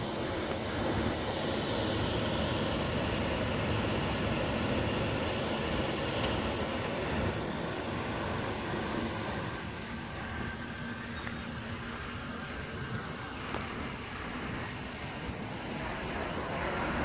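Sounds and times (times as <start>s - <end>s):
small click: 6.2s - 6.4s.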